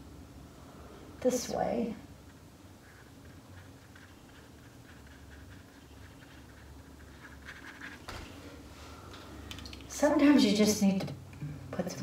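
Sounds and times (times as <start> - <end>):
paintbrush scratching on canvas: 2.2 - 8.2.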